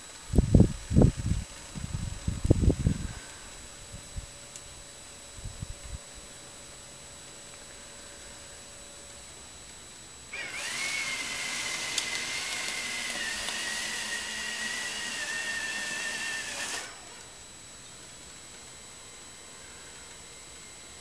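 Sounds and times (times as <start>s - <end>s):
electric motor whining: 10.3s - 17.7s.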